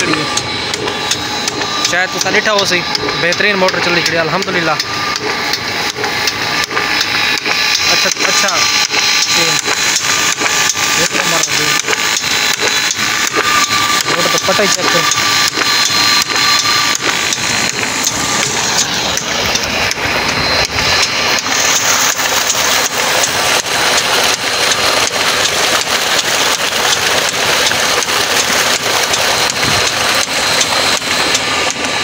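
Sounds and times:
thin steady high tone: 0.0 - 6.0
water gushing from pump outlet: 0.0 - 32.0.

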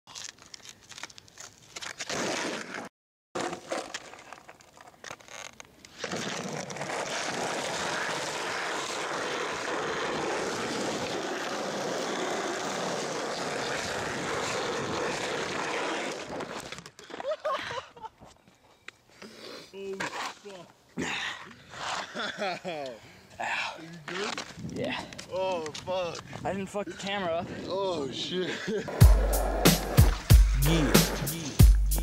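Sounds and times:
skateboard wheels rolling on asphalt: 0.9 - 19.1, 21.6 - 22.9, 23.9 - 26.6.

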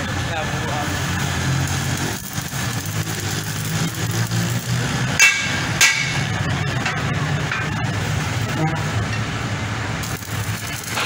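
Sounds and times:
arc welding hum and crackle: 0.0 - 11.0
ringing metal knocks: 5.2 - 7.7.

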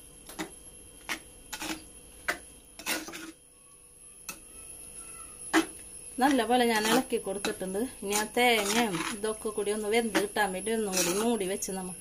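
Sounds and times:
metal spoon scraping clay pot: 0.4 - 2.0, 2.8 - 3.4, 5.6 - 11.7.

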